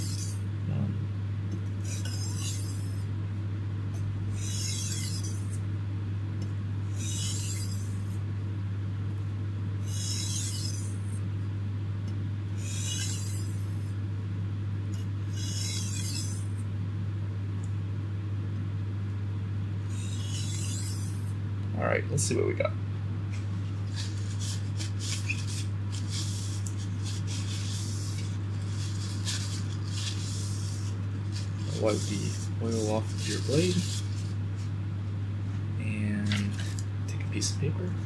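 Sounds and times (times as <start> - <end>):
steady low hum: 0.0 - 38.0
knife scraping on sharpening stone: 1.9 - 3.0, 4.4 - 5.6, 7.0 - 8.0, 9.9 - 11.0, 12.6 - 13.7, 19.9 - 21.3.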